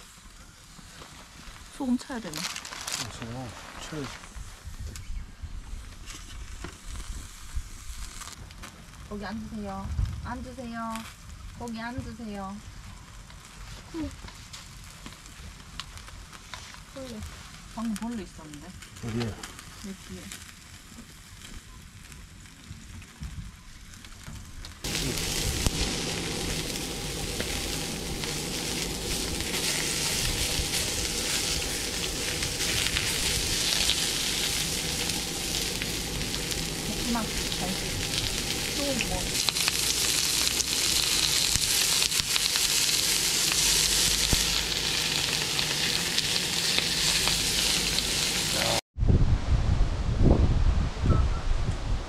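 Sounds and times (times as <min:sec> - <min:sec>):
food sizzling in a pan: 0:06.1 - 0:22.0, 0:24.8 - 0:48.8.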